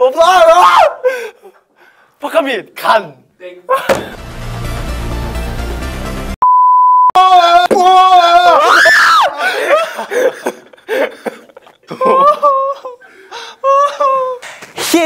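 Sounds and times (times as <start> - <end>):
young man shouting: 0.0 - 1.0
wheezing laughter: 9.3 - 13.7.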